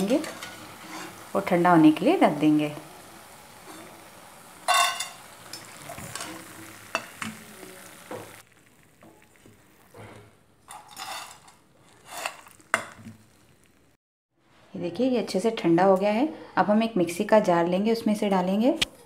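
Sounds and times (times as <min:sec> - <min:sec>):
metal spoon scraping a pan: 0:00.0 - 0:01.4, 0:04.6 - 0:07.4, 0:10.0 - 0:13.0
hot oil sizzling: 0:00.0 - 0:14.0.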